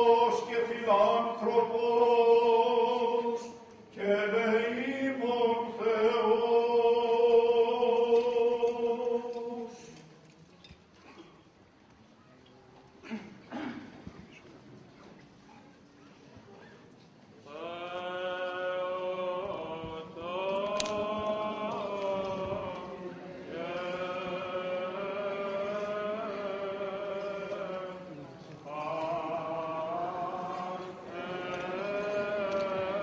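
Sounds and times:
person chanting long held notes: 17.5s - 33.0s.

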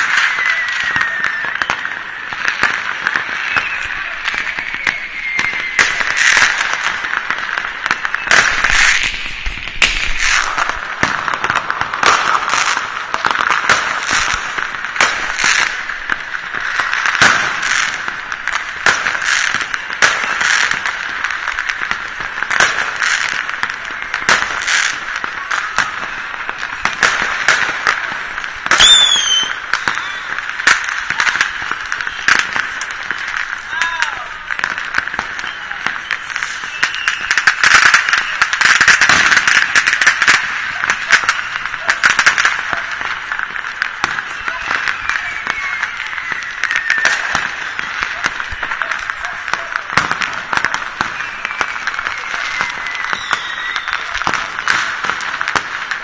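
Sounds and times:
distant firework bangs and crackling: 0.0s - 56.0s
firework whistle: 0.0s - 56.0s
sharp firecracker bangs: 0.0s - 56.0s.

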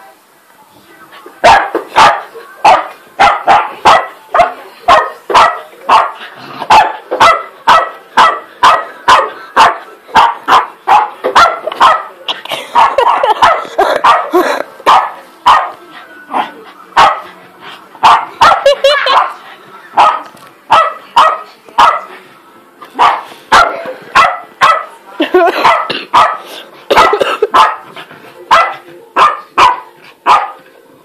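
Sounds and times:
dog barking excitedly: 1.4s - 12.1s, 12.7s - 15.8s, 17.0s - 17.3s, 18.0s - 19.4s, 20.0s - 22.1s, 23.0s - 24.9s, 25.5s - 30.6s.

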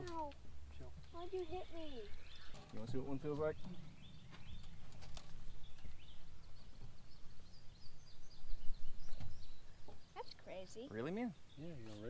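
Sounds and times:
faint high bird chirps: 0.2s - 12.0s.

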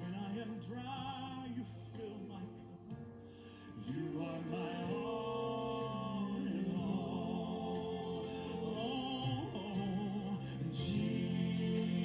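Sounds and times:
instrumental worship music: 0.0s - 12.0s.

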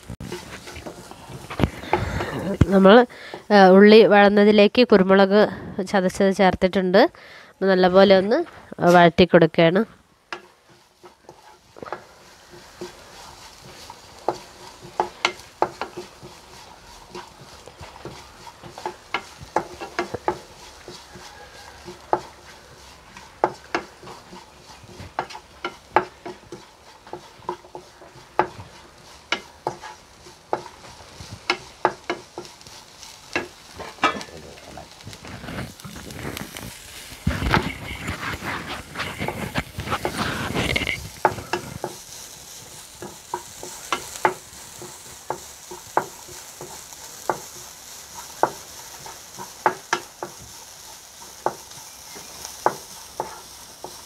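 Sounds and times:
onions sizzling: 0.0s - 54.0s
spatula tapping a pan: 10.3s - 34.3s, 41.2s - 54.0s.

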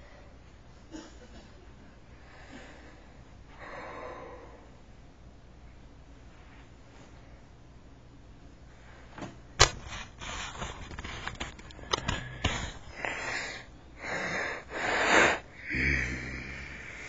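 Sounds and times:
raspy sniffing breaths: 9.6s - 17.0s.

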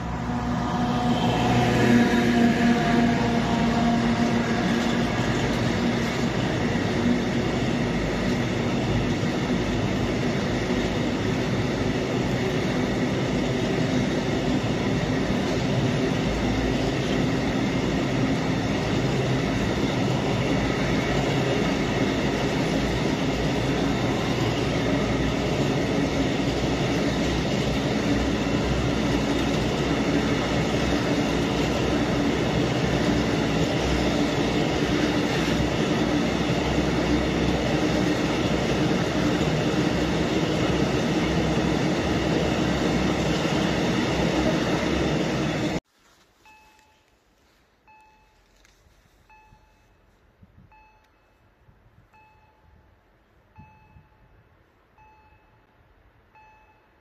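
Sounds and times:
diesel locomotive droning hum: 0.0s - 57.0s
train rail rumble: 0.0s - 57.0s.

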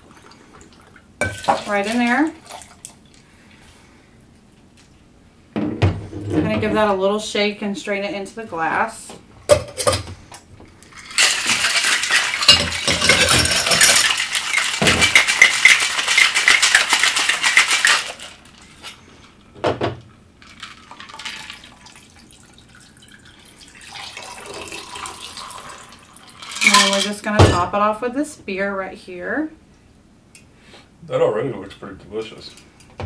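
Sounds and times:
ice rattling in metal shaker: 10.9s - 19.0s, 20.4s - 22.8s, 23.9s - 27.2s
drink pouring into glass: 20.5s - 27.0s.

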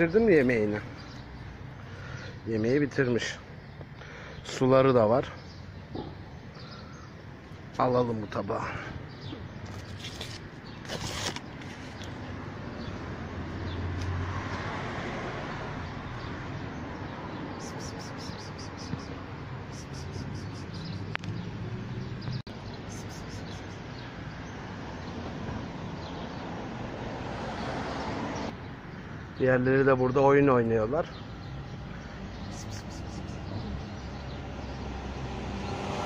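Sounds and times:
outdoor background noise: 0.0s - 36.0s
high rapid chirping: 17.6s - 21.1s, 22.8s - 23.9s, 32.4s - 33.7s.

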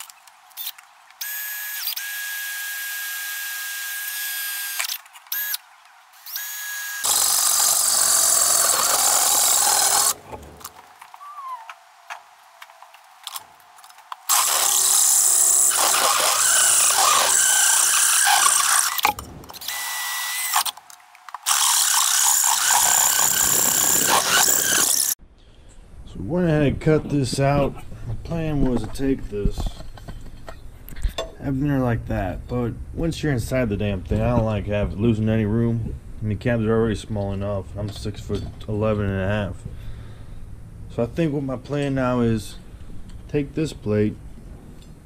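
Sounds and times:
power drill cutting sheet metal: 0.6s - 5.6s, 6.2s - 10.2s, 14.3s - 20.8s, 21.4s - 25.2s.

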